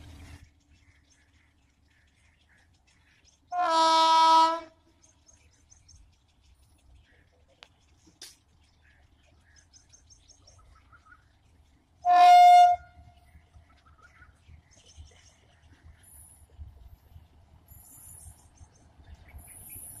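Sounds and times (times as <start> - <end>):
locomotive horn blast: 3.5 - 4.7, 12.0 - 13.1.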